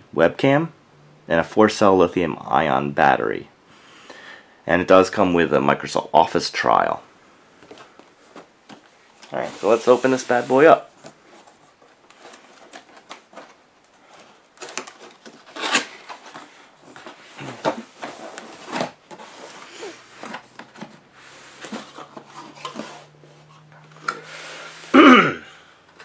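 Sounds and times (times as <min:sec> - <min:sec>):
cardboard rubbing and scraping: 0:09.3 - 0:13.6, 0:15.0 - 0:23.5.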